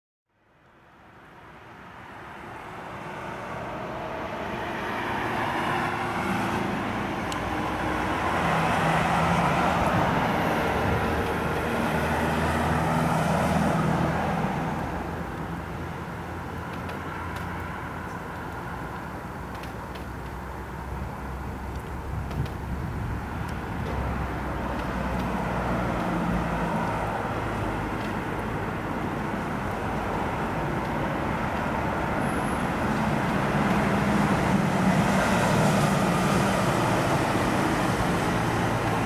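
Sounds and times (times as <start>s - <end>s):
distant rumbling roar: 2.9s - 15.0s.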